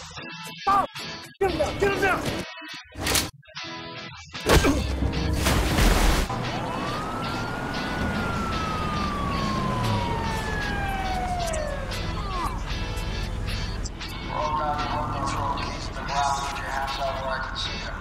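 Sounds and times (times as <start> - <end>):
police siren wailing: 6.3 - 13.0.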